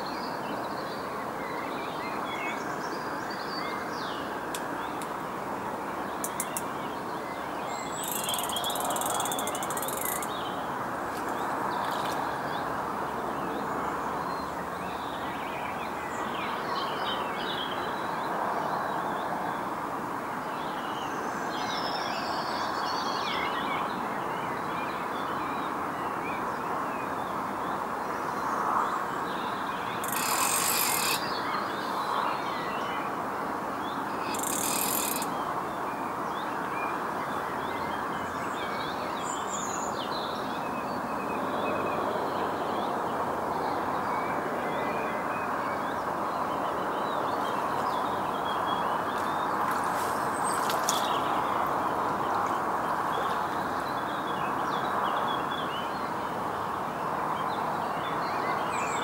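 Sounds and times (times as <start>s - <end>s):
small birds chirping: 6.1s - 7.0s, 7.7s - 12.2s, 29.9s - 32.2s, 33.8s - 35.6s.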